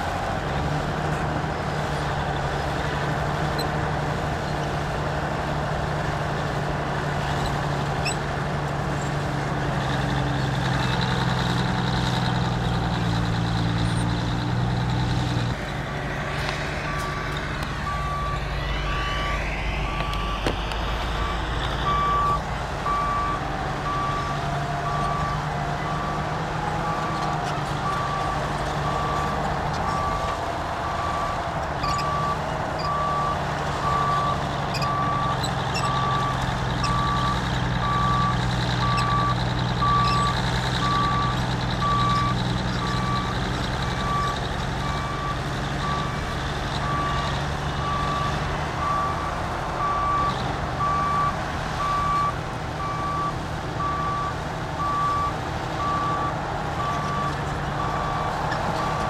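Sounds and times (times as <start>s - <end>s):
heavy diesel machine running: 0.0s - 59.0s
reversing alarm beeping: 16.2s - 27.2s, 27.8s - 43.4s, 46.8s - 59.0s.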